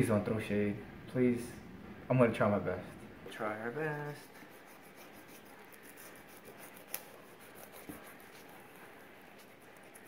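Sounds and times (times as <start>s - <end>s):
knife scraping through fish scales: 4.2s - 10.0s.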